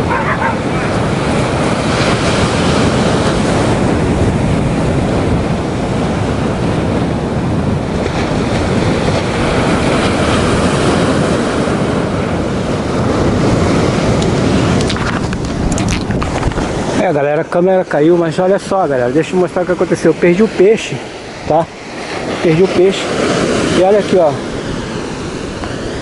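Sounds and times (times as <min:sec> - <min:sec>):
ocean surf washing on beach: 0:00.0 - 0:26.0
wind buffeting microphone: 0:00.0 - 0:26.0.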